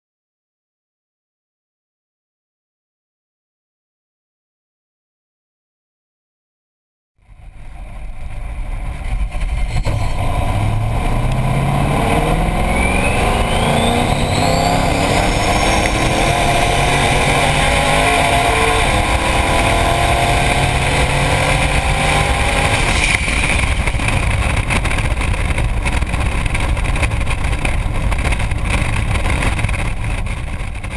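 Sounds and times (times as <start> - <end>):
engine at full throttle: 7.2 - 30.9
heavy wind rush: 7.3 - 30.9.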